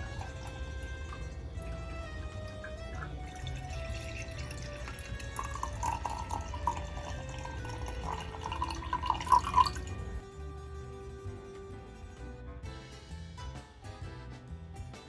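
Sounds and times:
tea pouring into a mug: 0.0s - 10.1s
drips: 0.0s - 10.2s
soft background music: 0.0s - 15.0s.

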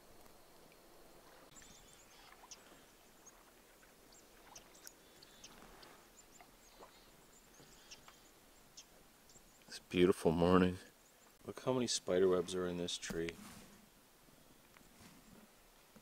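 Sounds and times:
faint high-pitched chirps and ticks: 0.0s - 10.0s, 10.8s - 11.8s.

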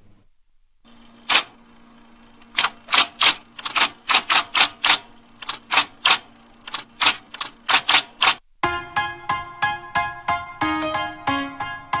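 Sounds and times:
typewriter keys clacking: 1.2s - 1.5s, 2.4s - 8.4s.

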